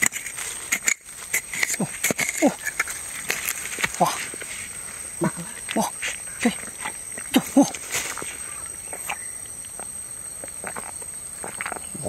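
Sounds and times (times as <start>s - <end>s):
hand digging in soil: 0.0s - 9.2s.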